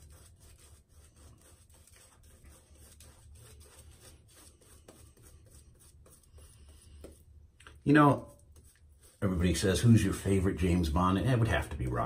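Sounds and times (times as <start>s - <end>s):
shaving brush rubbing skin: 0.0s - 7.3s, 8.2s - 10.5s.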